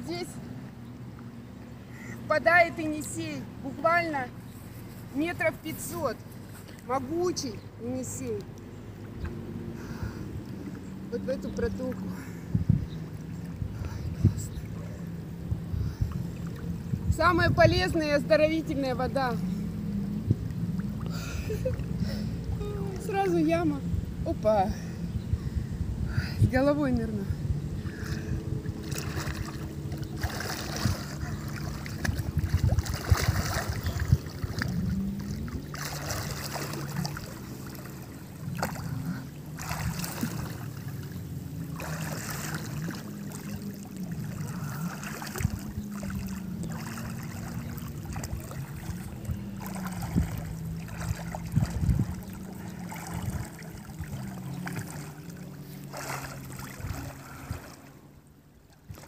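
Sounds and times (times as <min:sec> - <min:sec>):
steady low drone: 0:08.4 - 0:58.7
water splashing from swimming: 0:27.8 - 0:59.0.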